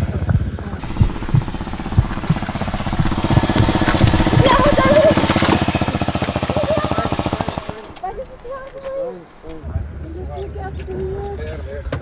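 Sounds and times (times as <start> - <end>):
motorcycle engine idling: 0.8 - 9.6.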